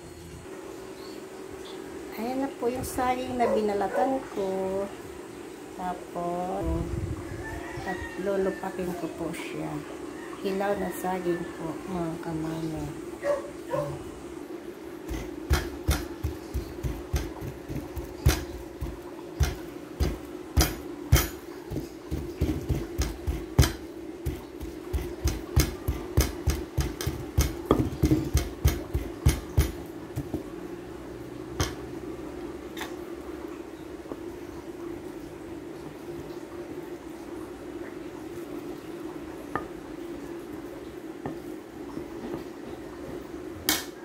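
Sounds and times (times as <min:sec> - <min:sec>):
steady hum: 0:00.0 - 0:44.0
pestle pounding in wooden mortar: 0:15.0 - 0:30.5.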